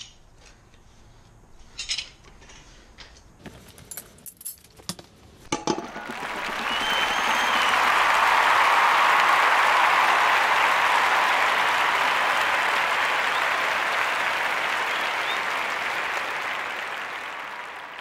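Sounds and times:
crowd applauding and cheering: 5.6s - 18.0s
faint whistles: 5.9s - 18.0s.

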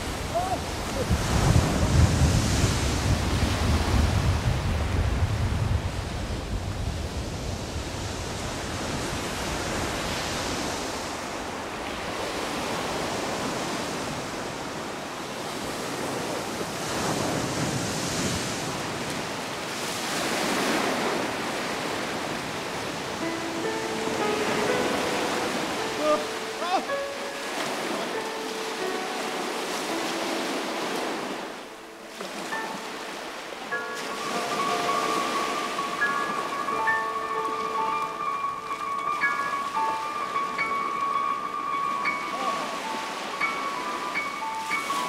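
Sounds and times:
wind rumble on microphone: 0.0s - 23.2s
sea waves breaking on beach: 0.0s - 45.0s.

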